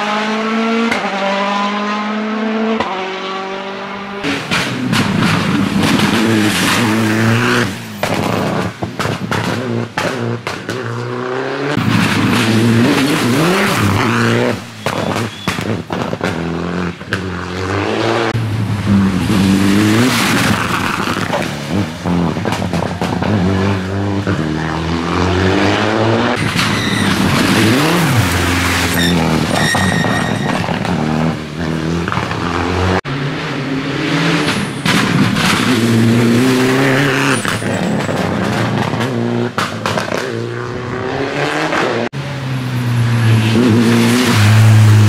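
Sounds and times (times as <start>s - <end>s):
rally car engines revving: 0.0s - 45.0s
sharp engine pops: 14.8s - 16.4s.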